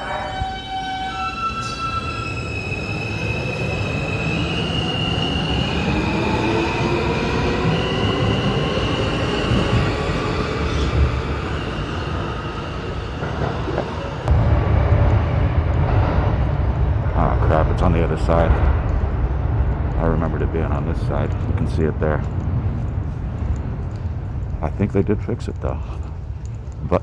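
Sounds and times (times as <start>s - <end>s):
wheels rumbling on rail: 0.0s - 27.0s
loud low rumble: 14.2s - 25.6s.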